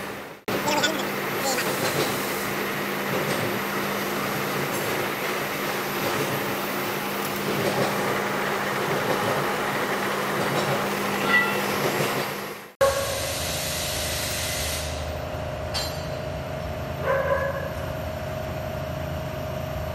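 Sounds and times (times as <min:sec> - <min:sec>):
machinery humming: 0:00.0 - 0:14.2.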